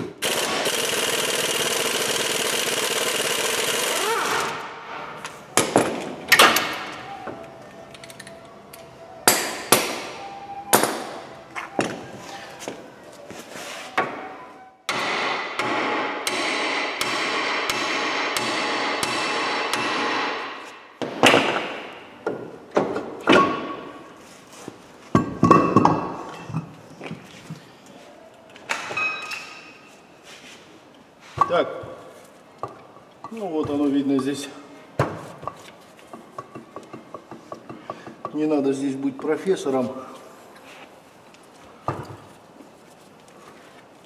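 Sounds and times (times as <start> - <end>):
steady mechanical noise: 0.0 - 4.9
metal clanks and knocks: 25.1 - 26.8.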